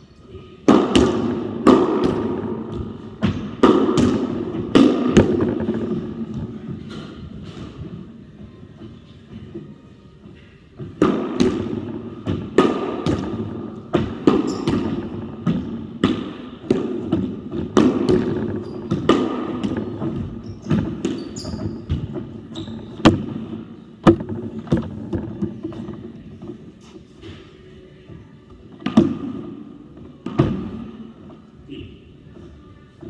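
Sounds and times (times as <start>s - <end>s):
squash ball hits echoing: 0.6s - 8.1s, 10.8s - 26.6s, 28.7s - 31.2s.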